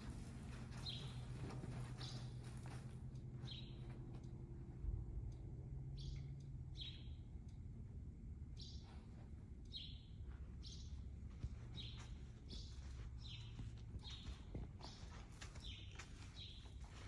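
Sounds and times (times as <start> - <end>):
faint low rumble: 0.0 - 17.0.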